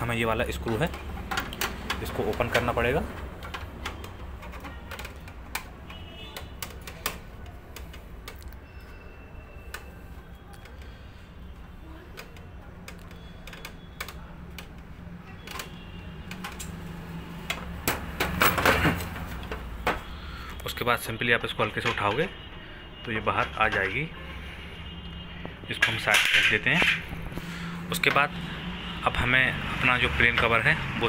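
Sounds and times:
knocks and rattles: 0:17.5 - 0:20.1.

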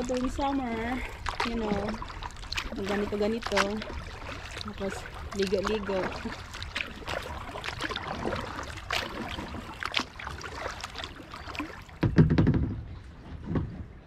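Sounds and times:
kayak paddle splashing: 0:00.0 - 0:14.0
heavy low thump: 0:12.0 - 0:13.9.

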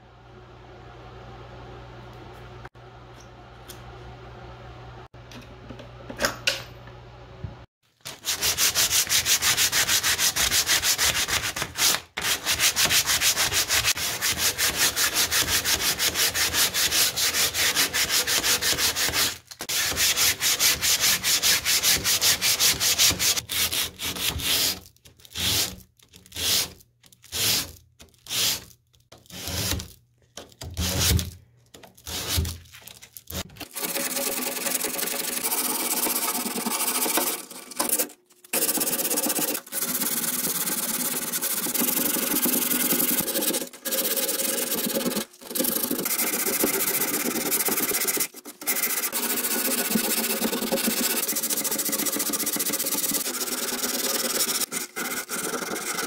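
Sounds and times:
sanding sponge rubbing wood: 0:08.1 - 0:25.8, 0:26.4 - 0:28.7, 0:32.1 - 0:32.6, 0:33.2 - 0:56.0.

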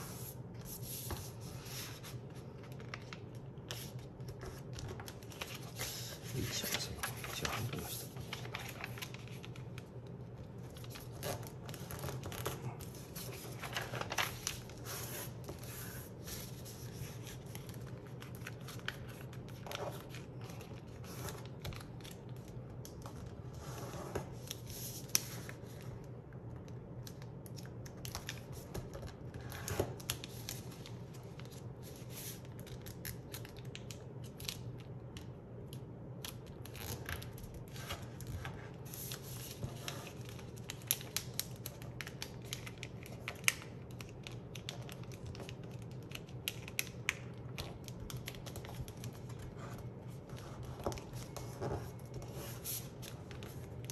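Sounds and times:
paper rustling and crinkling: 0:00.0 - 0:26.0, 0:36.2 - 0:53.9.

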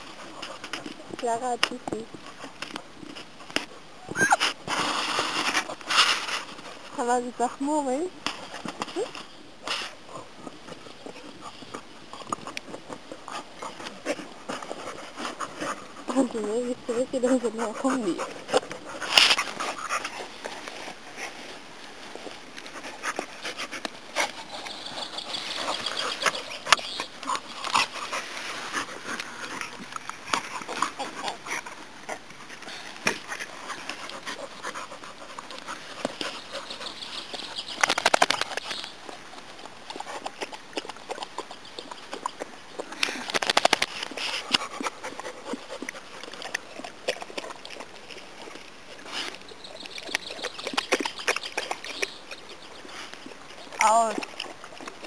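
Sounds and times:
dogs scuffling: 0:00.0 - 0:41.2
dogs panting: 0:10.0 - 0:55.0.

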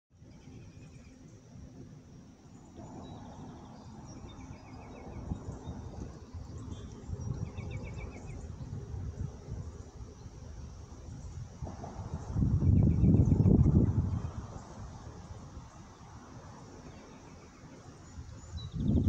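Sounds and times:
insects droning: 0:00.2 - 0:19.0
low rumble: 0:11.4 - 0:14.8.

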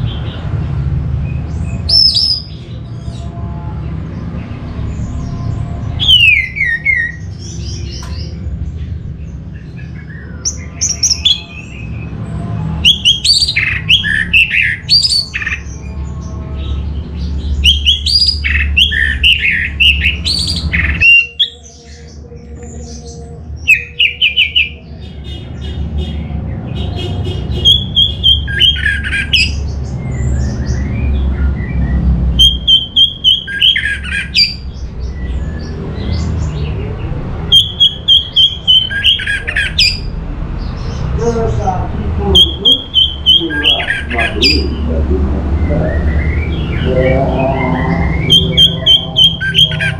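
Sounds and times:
thrush singing: 0:30.8 - 0:49.9.

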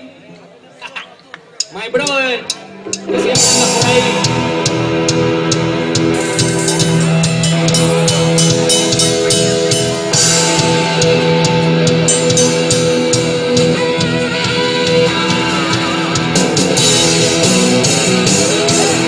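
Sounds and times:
rock band playing: 0:02.0 - 0:19.0.

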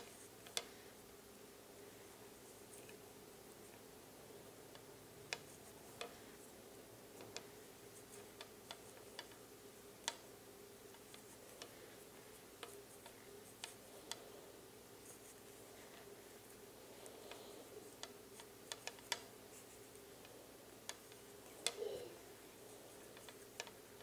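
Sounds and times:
knitting needles clicking: 0:00.0 - 0:00.8, 0:04.7 - 0:06.2, 0:07.2 - 0:09.4, 0:10.0 - 0:10.3, 0:17.0 - 0:22.0, 0:22.9 - 0:24.0
faint steady hum: 0:00.0 - 0:24.0.

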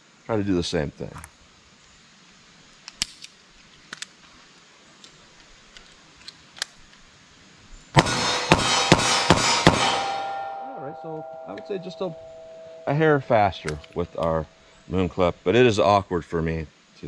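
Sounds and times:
revolver gunshots: 0:08.0 - 0:10.6
steel target ringing: 0:08.0 - 0:14.8.

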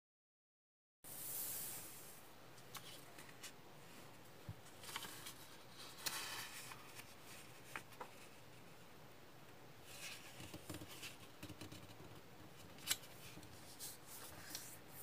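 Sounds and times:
paper rustling and crinkling: 0:04.7 - 0:08.4.

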